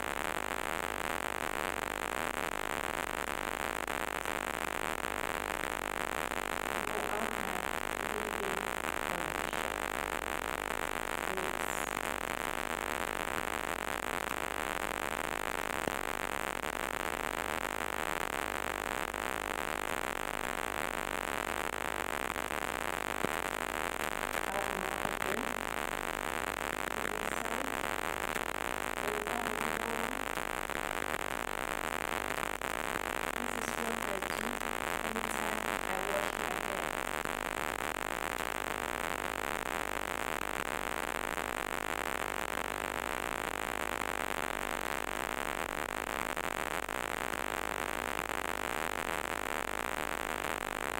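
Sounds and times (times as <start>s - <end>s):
recording hiss: 0.0s - 50.9s
faint pitched sounds: 23.2s - 28.1s, 28.7s - 30.4s, 32.7s - 37.1s.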